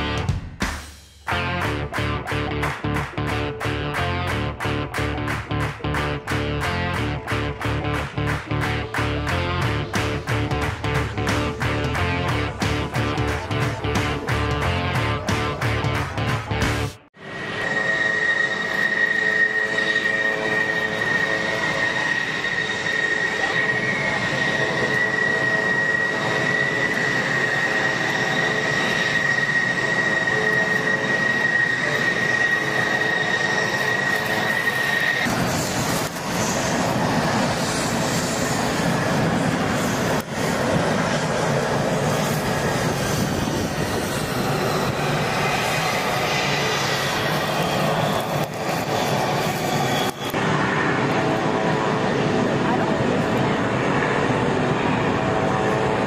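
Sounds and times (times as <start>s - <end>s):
jet engine rushing noise: 4.3s - 56.0s
jet engine turbine whine: 17.1s - 56.0s.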